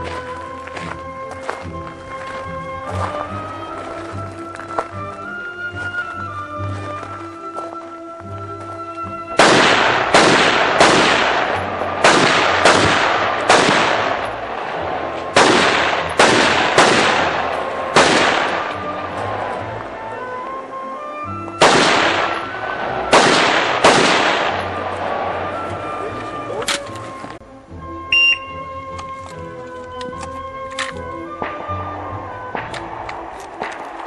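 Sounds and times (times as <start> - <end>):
background music: 0.0 - 34.0
rifle shots echoing: 9.4 - 19.7, 21.6 - 25.6, 31.4 - 34.0.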